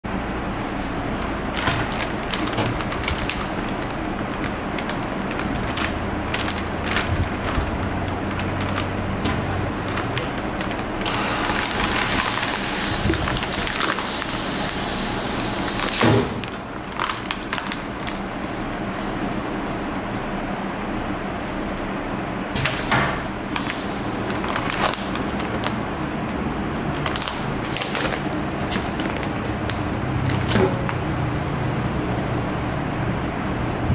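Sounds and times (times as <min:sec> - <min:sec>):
low machine hum: 0:00.0 - 0:33.9
foil bag crinkling: 0:01.2 - 0:19.2, 0:23.4 - 0:31.2
air hissing through nozzles: 0:11.0 - 0:16.1.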